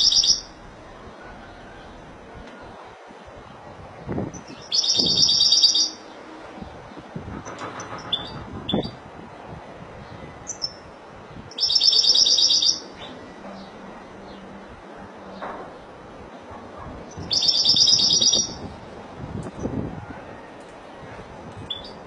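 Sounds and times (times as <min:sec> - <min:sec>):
bird chirps: 0:04.4 - 0:06.2, 0:07.8 - 0:09.0, 0:10.5 - 0:10.8, 0:11.5 - 0:13.7, 0:17.1 - 0:18.7, 0:21.7 - 0:22.0.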